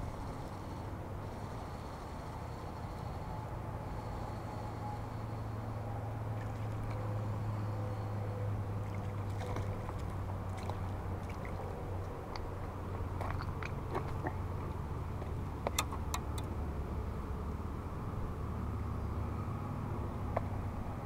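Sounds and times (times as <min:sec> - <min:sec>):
small clicks and knocks: 0:15.6 - 0:16.5.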